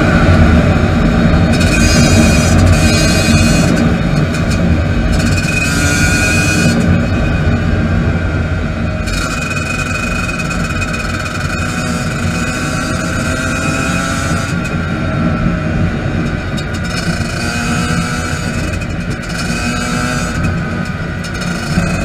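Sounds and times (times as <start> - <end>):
two-stroke dirt bike engine: 0.0 - 22.0.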